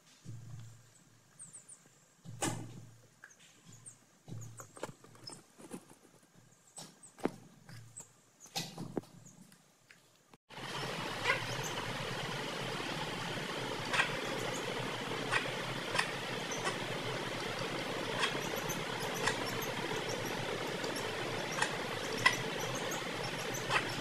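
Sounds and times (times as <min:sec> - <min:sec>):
steady background hiss: 0:08.0 - 0:24.0.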